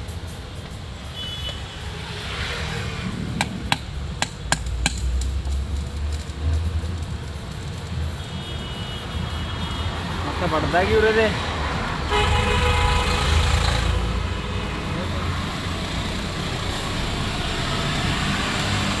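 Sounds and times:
road traffic rumble: 0.0s - 19.0s
hammer striking metal: 3.4s - 5.3s.

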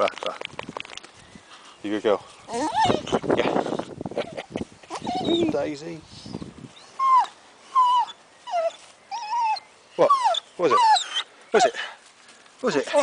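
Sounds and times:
dog whining: 2.5s - 3.2s, 4.2s - 5.6s, 6.8s - 11.8s.

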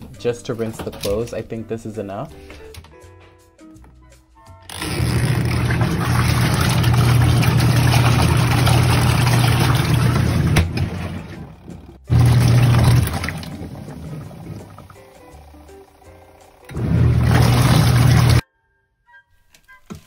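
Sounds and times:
washing machine motor hum: 4.7s - 18.4s
water churning: 4.8s - 15.2s, 16.7s - 18.4s.

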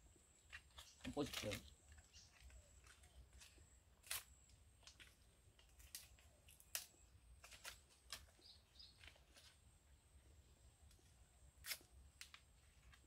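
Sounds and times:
stalk snapping and cracking: 0.5s - 8.4s, 11.6s - 13.0s.

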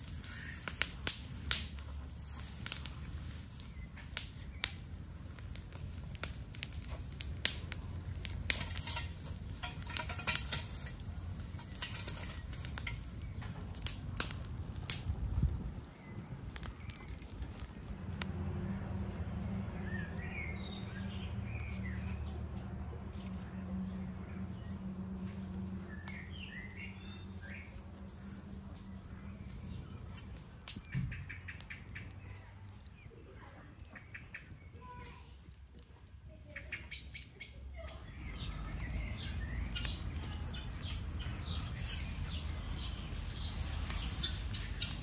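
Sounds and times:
sharp crackles and clicks: 0.0s - 18.5s, 24.2s - 37.2s, 37.9s - 45.0s
birds chirping: 7.6s - 13.6s, 23.5s - 27.8s, 36.5s - 45.0s.

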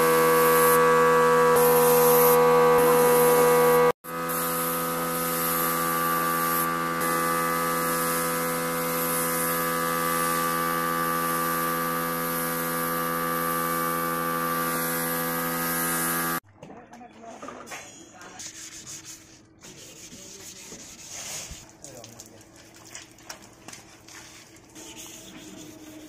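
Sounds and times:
paint spray gun hissing: 0.3s - 0.8s, 1.6s - 16.4s.

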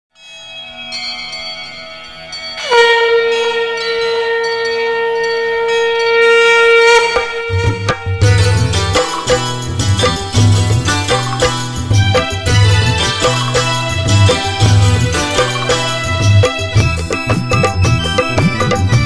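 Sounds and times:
long horn note: 2.6s - 9.1s
drums and bass: 7.2s - 19.0s.

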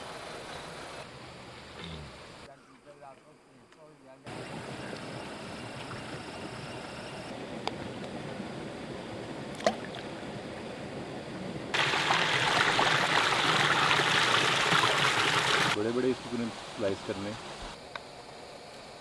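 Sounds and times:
water rushing close by: 11.4s - 17.8s
stream babbling over rocks: 11.7s - 15.8s.

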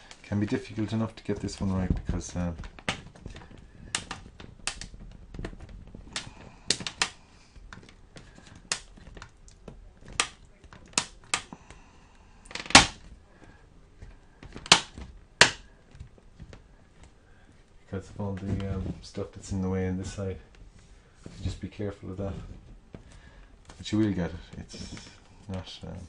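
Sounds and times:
plastic clips clicking: 2.6s - 11.6s, 14.4s - 16.0s.

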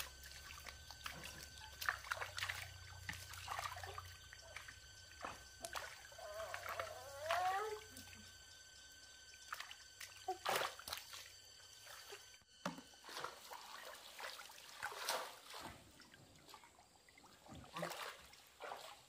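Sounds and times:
water trickling and splashing: 0.0s - 19.0s.

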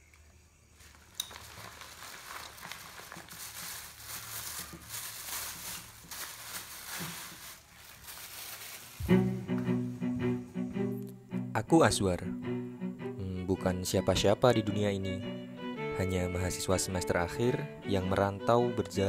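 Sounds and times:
paper and plastic bag crinkling: 0.8s - 9.2s.

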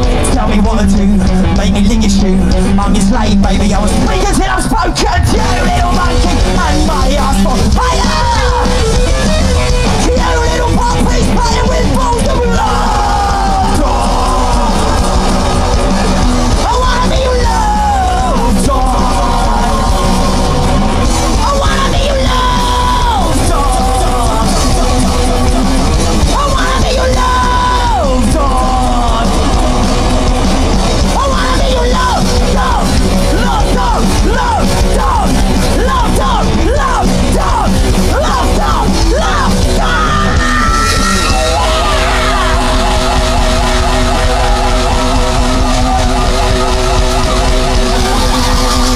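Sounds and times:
punk rock band playing: 0.0s - 48.9s
singer yelling: 0.0s - 48.9s.

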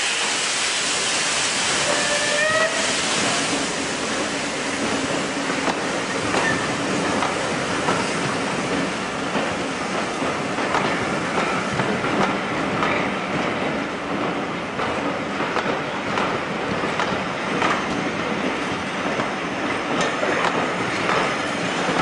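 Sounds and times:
train coaches rumbling past: 0.0s - 22.0s
wheels squealing on rail: 1.7s - 3.6s, 6.0s - 7.2s
wheels clicking over rail joints: 4.8s - 22.0s.

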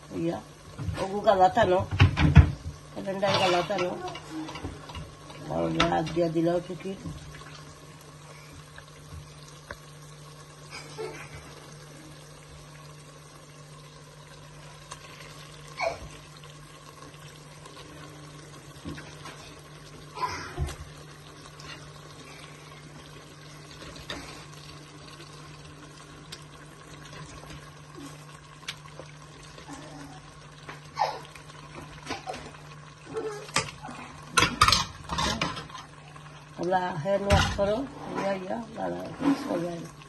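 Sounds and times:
kitchen clatters: 1.8s - 6.3s, 33.5s - 35.9s, 37.2s - 38.5s
faint watery hiss: 29.6s - 39.9s.

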